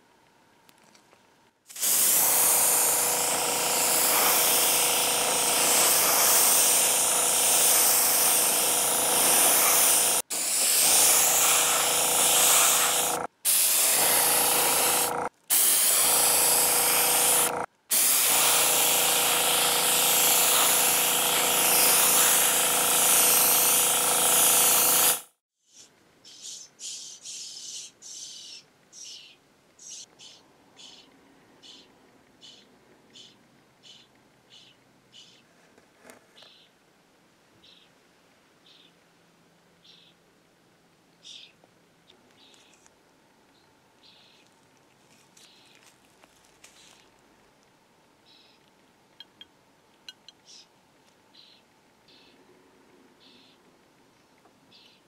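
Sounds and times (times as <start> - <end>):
airbrush hissing: 1.7 - 25.3
compressor humming: 1.8 - 25.2.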